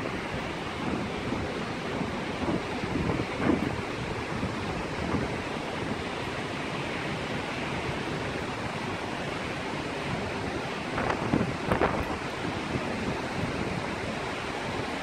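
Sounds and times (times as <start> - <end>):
heavy rain falling: 0.0 - 15.0
wind rumble on microphone: 0.0 - 15.0.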